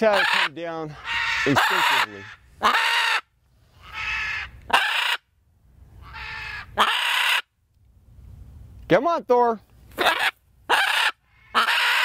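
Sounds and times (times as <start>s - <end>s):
macaws squawking: 0.0s - 5.3s, 6.0s - 7.5s, 9.9s - 12.0s.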